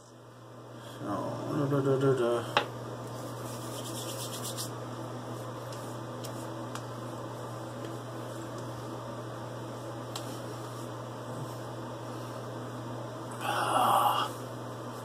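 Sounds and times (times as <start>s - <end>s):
low hum with faint hiss: 0.0s - 15.0s
hands patting face: 3.3s - 4.8s, 5.6s - 6.9s.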